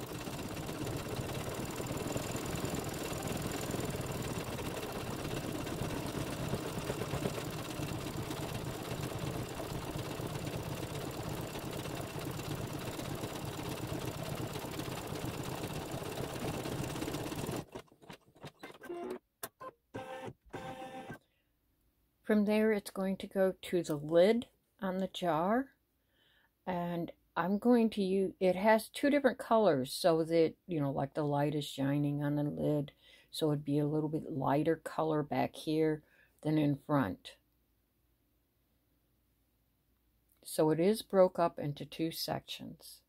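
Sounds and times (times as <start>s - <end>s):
embroidery machine sewing: 0.0s - 19.2s.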